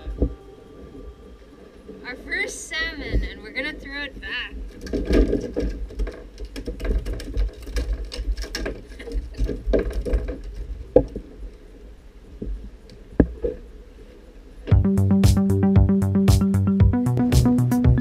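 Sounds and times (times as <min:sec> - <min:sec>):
music: 0:00.0 - 0:02.0, 0:14.7 - 0:18.0.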